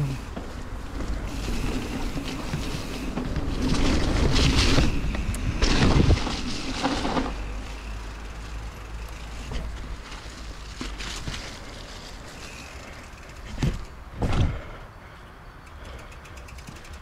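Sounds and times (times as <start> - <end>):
bike tyres rolling over ground: 0.0 - 15.2, 15.8 - 17.0.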